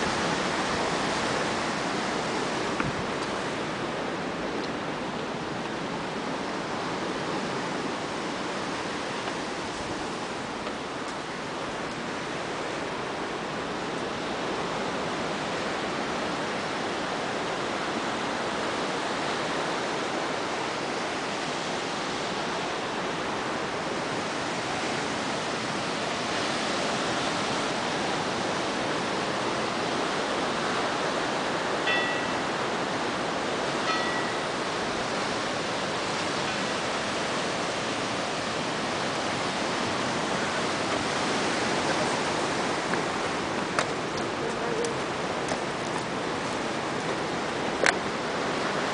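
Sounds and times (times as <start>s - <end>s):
surf breaking over rocks: 19.1s - 48.9s.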